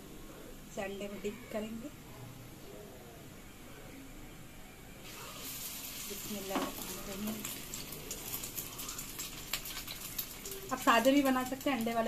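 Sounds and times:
patty sizzling in hot oil: 5.0 - 12.0.

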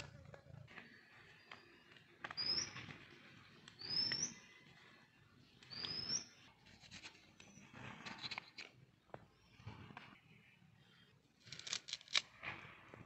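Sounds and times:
bird whistling call: 2.3 - 2.9, 3.8 - 4.5, 5.7 - 6.4.

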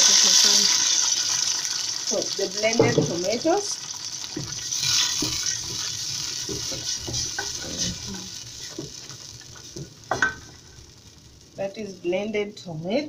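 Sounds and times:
tomatoes sizzling in hot oil: 0.0 - 13.0
spoon stirring and scraping pot: 4.3 - 10.5.

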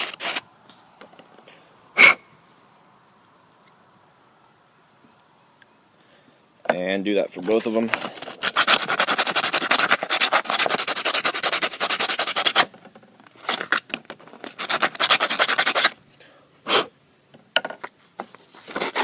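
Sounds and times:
sandpaper rubbing plastic pipe: 0.0 - 0.4, 8.0 - 12.8, 13.4 - 16.0, 18.5 - 19.0.

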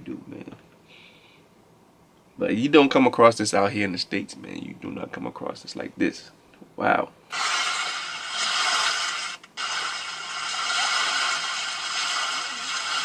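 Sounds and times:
steady static hiss: 0.0 - 13.0.

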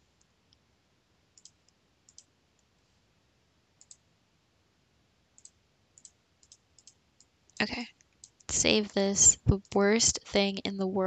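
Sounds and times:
computer mouse clicks: 1.3 - 2.7, 3.8 - 4.0, 5.4 - 8.5.

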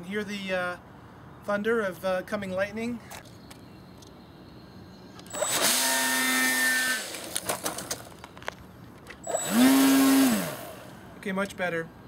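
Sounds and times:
electric motor whining: 5.3 - 7.4, 9.2 - 11.0.

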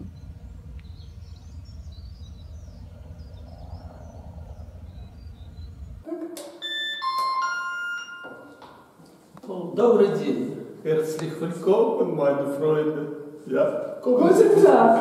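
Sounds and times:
outdoor low rumble: 0.0 - 6.1
birds chirping: 0.0 - 7.0
doorbell button press: 6.6 - 8.8
electronic door chime melody: 6.6 - 8.9.

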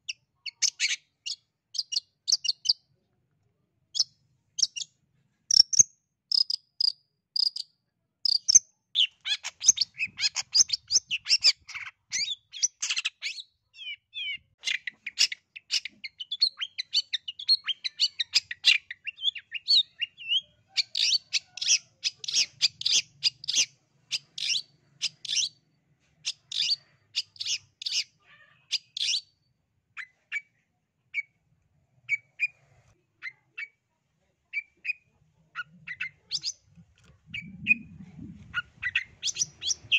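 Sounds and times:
bird singing chattering notes: 5.5 - 7.7, 37.3 - 39.9.

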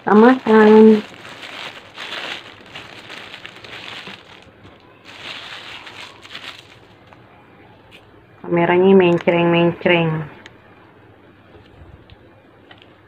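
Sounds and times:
paper wrapping crinkling: 0.0 - 7.2.

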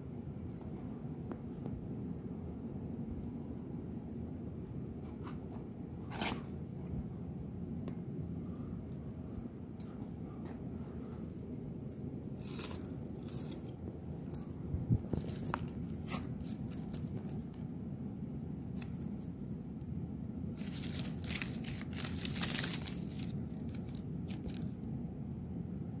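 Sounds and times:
low background rumble: 0.0 - 26.0
rustling and crinkling handling noise: 9.8 - 19.4, 20.5 - 24.8.

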